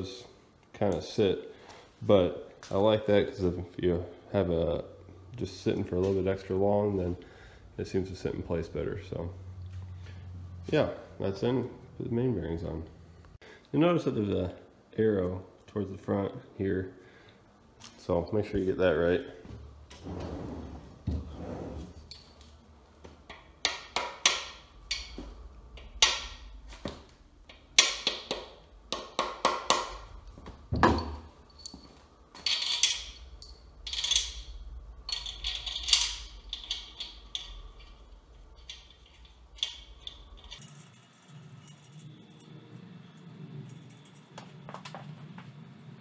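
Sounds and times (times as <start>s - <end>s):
metal parts clinking and knocking: 23.3s - 26.6s, 30.7s - 42.6s.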